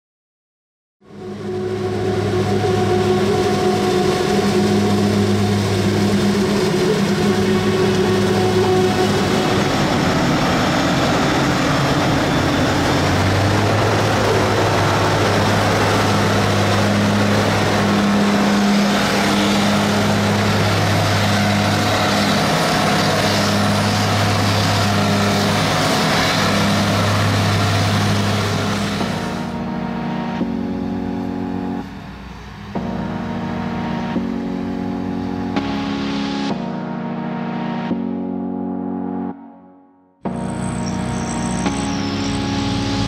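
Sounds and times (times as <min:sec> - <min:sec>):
deep engine drone: 0:01.0 - 0:36.6, 0:40.2 - 0:43.0
broad rushing noise: 0:01.1 - 0:29.6.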